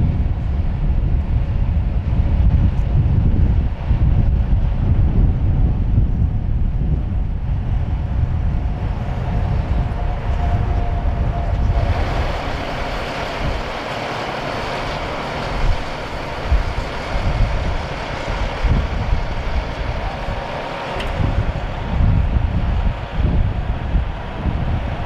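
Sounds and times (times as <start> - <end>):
heavy vehicle engine running: 0.0 - 25.0
wind buffeting microphone: 0.0 - 25.0
steady hiss: 11.7 - 24.3.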